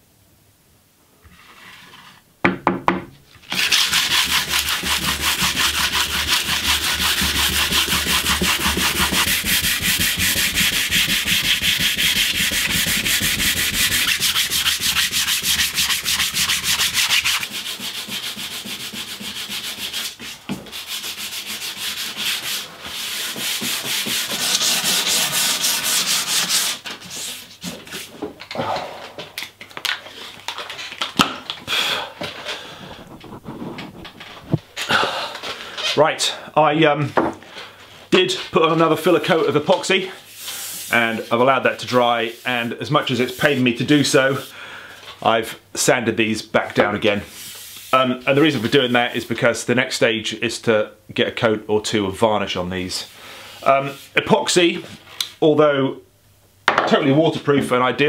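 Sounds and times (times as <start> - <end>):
sandpaper rubbing on paddle: 3.5 - 28.1, 32.9 - 34.6, 39.0 - 44.5, 47.2 - 49.4.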